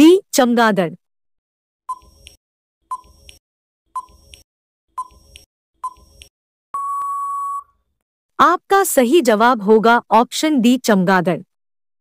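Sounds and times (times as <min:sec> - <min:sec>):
long steady beep: 0:06.8 - 0:07.7.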